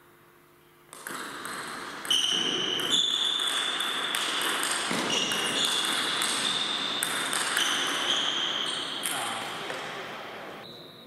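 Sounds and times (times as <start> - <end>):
table tennis ball clicking: 0.9 - 8.1.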